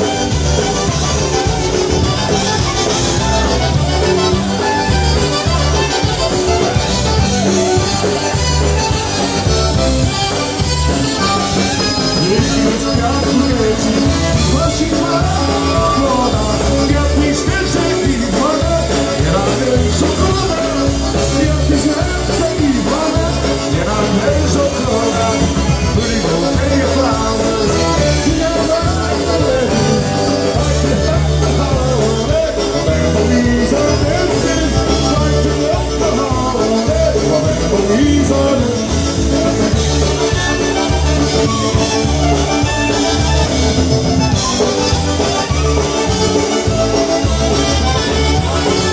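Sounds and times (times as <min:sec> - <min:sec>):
polka band playing: 0:00.0 - 0:48.9.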